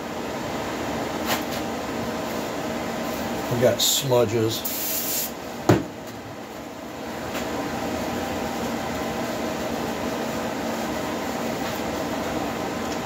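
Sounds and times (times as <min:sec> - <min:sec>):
steady workshop hum: 0:00.0 - 0:13.0
can knocking on workbench: 0:05.7 - 0:05.9.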